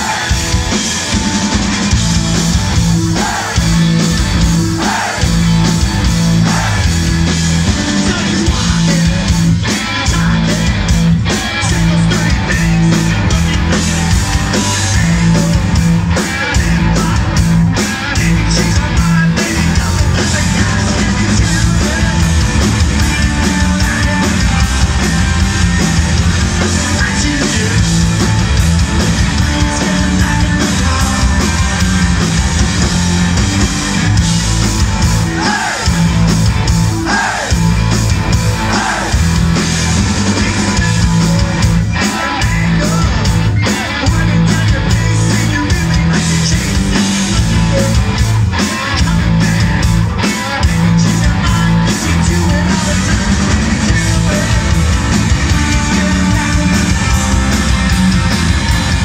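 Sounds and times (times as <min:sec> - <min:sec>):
live rock band: 0:00.0 - 0:59.0
vocals sung into microphones: 0:35.3 - 0:35.9.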